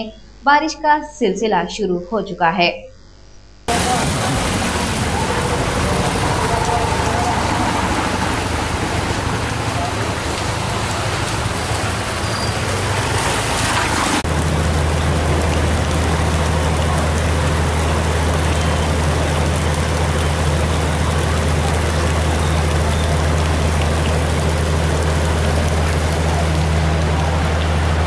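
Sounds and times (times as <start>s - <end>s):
floodwater rushing: 3.7s - 28.0s
heavy rain falling: 3.7s - 28.0s.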